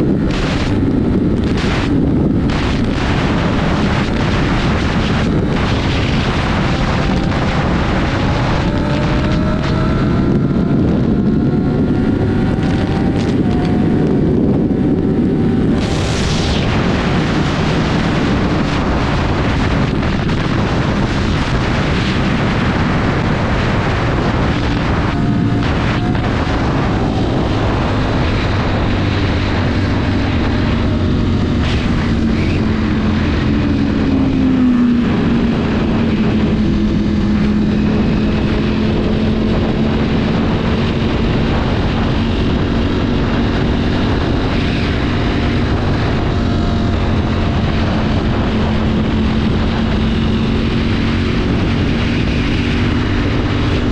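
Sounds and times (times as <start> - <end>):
motorcycle engine running: 0.0 - 53.9
wind rushing: 0.0 - 53.9.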